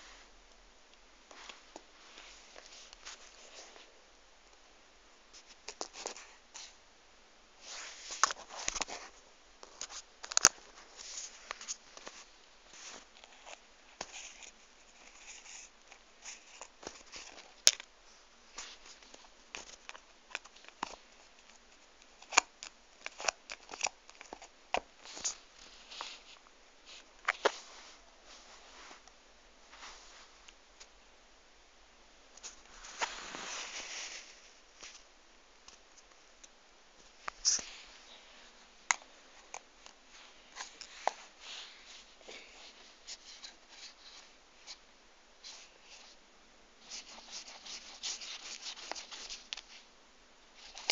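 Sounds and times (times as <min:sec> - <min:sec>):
rubbing and rustling: 0:01.3 - 0:03.9, 0:07.6 - 0:30.9, 0:32.4 - 0:35.1, 0:37.0 - 0:44.8, 0:46.8 - 0:49.9.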